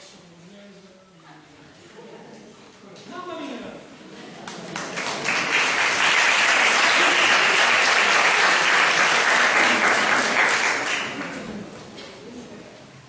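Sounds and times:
audience applauding: 0:04.5 - 0:11.6.

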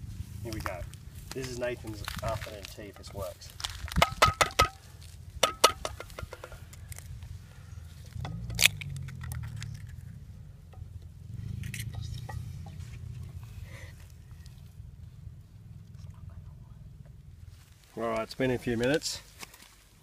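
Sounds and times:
frying pan clinking on rock: 0:05.4 - 0:06.6
egg cracking on pan: 0:05.4 - 0:07.0.

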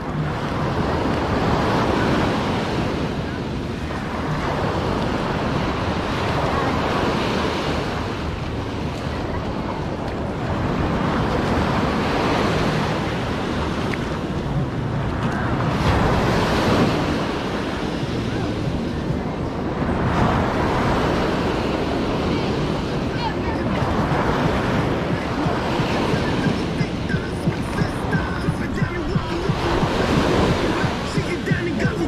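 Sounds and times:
ocean surf breaking: 0:00.0 - 0:32.0
wind buffeting microphone: 0:00.0 - 0:32.0.

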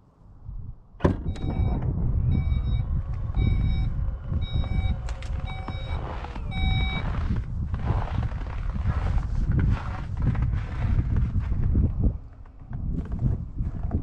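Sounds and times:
heavy low rumble: 0:00.3 - 0:14.0
reversing warning beeps: 0:01.3 - 0:07.4.

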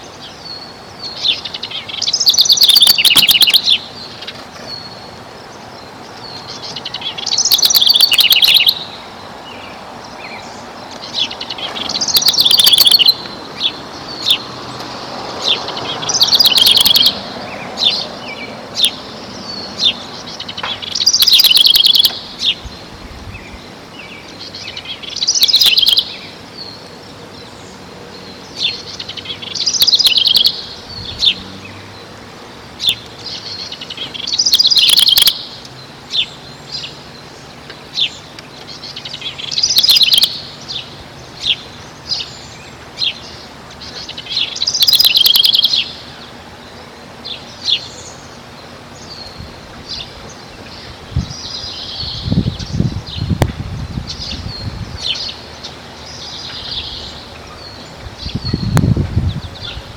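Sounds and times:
sharp bird chirps: 0:00.0 - 0:05.0, 0:06.3 - 0:09.0, 0:10.3 - 0:14.5, 0:15.4 - 0:17.2, 0:17.8 - 0:22.7, 0:24.4 - 0:26.3, 0:28.5 - 0:31.8, 0:32.8 - 0:35.6, 0:39.0 - 0:46.0
songbird trilling: 0:00.0 - 0:32.1, 0:32.7 - 0:59.9.

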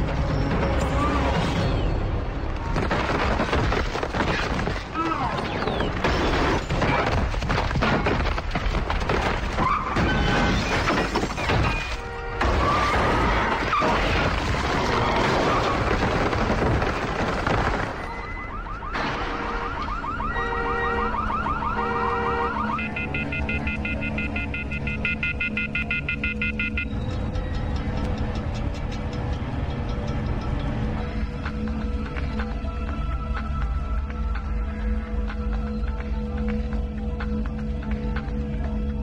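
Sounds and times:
music: 0:00.0 - 0:03.0, 0:22.4 - 0:39.0
electronic alarm beeping: 0:22.6 - 0:27.2.

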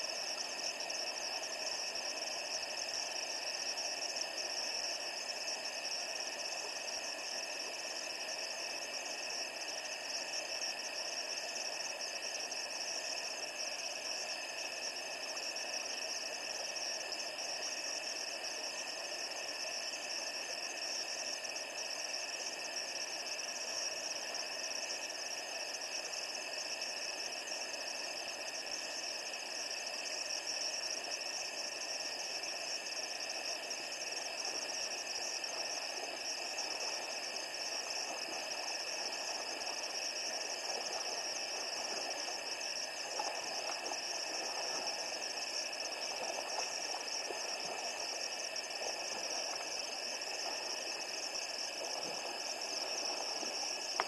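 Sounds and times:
constant hiss: 0:00.0 - 0:54.0
night insects chorus: 0:00.0 - 0:54.0.

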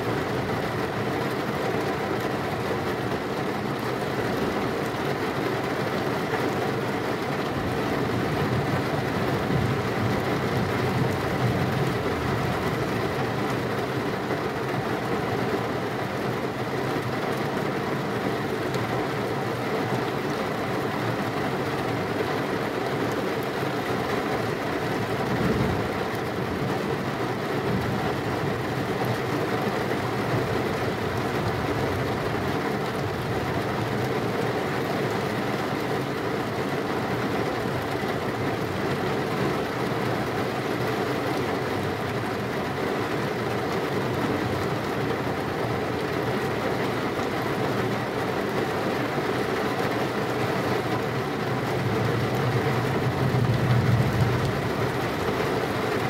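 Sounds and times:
heavy rain falling: 0:00.0 - 0:56.0
thunder rumbling: 0:52.2 - 0:55.3.

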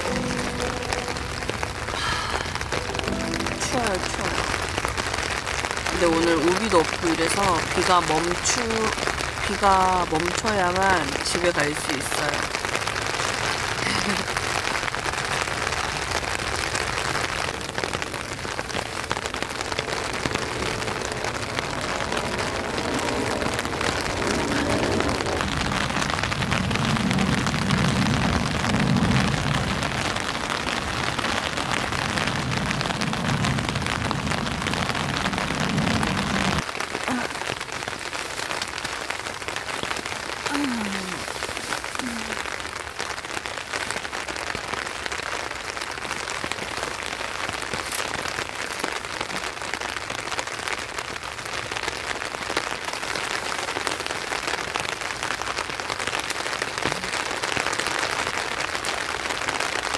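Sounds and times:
rain on a tent: 0:00.0 - 0:59.9
low rumble: 0:17.5 - 0:36.6.

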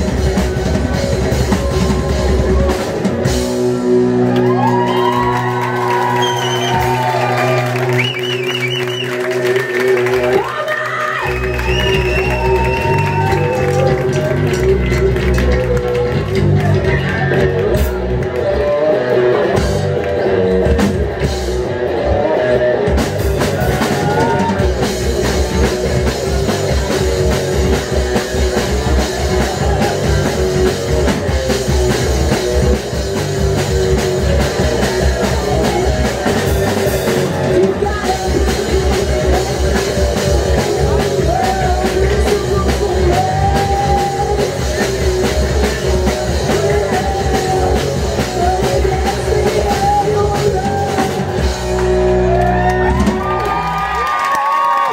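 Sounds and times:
live rock band playing: 0:00.0 - 0:54.9
cymbals and drum beat: 0:23.0 - 0:51.8
woman singing: 0:37.5 - 0:44.9, 0:46.3 - 0:51.4.

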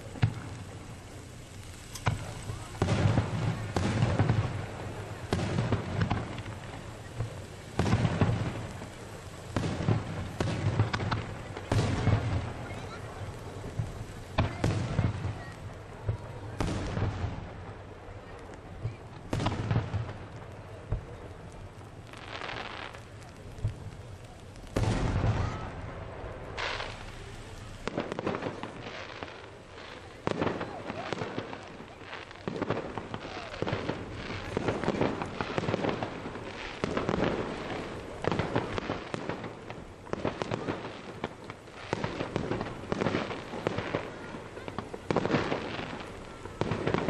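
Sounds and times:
firework booms: 0:00.0 - 0:47.0
firework bursts and crackling: 0:00.0 - 0:47.0.

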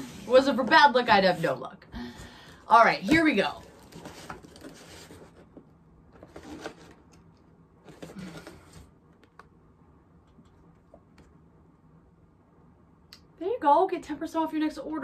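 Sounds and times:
cardboard and paper rustling: 0:02.8 - 0:08.9.

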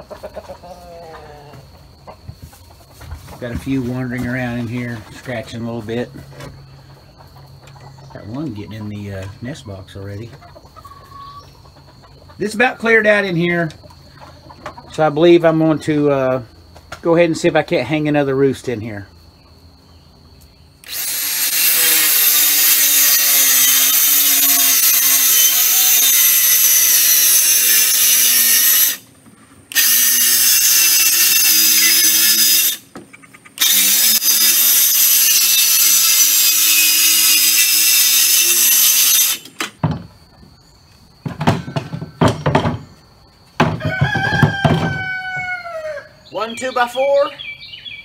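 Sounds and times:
circular saw cutting wood: 0:20.8 - 0:29.0, 0:29.7 - 0:32.9, 0:33.6 - 0:39.6
wooden boards knocking: 0:41.2 - 0:43.0, 0:43.6 - 0:45.1.

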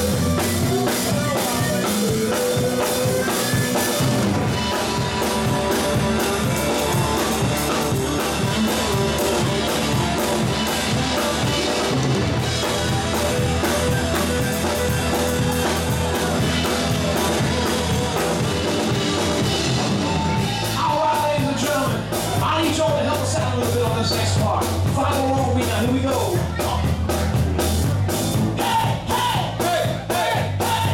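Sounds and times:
rock band playing: 0:00.0 - 0:30.9.

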